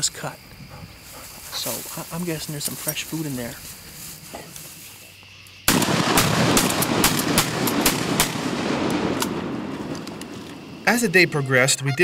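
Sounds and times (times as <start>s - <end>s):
shotgun fire cracks: 5.7s - 10.6s.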